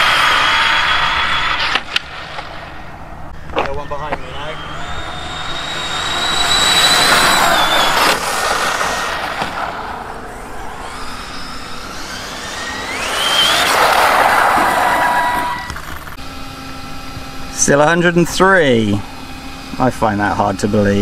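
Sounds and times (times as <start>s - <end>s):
rushing noise: 0.0s - 16.2s
electric motor whining: 0.0s - 17.6s.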